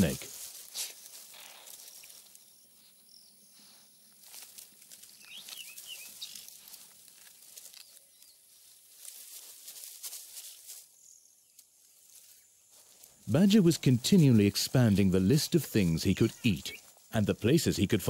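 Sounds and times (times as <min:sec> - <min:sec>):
animal chewing and crunching: 0:04.2 - 0:10.7.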